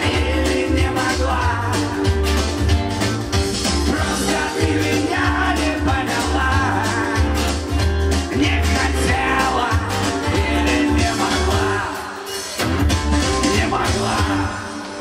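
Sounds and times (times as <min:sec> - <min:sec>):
man singing into a microphone: 0:00.0 - 0:02.0, 0:03.9 - 0:07.4, 0:08.3 - 0:12.3, 0:13.3 - 0:14.9
pop backing music with pulsing bass: 0:00.0 - 0:15.0.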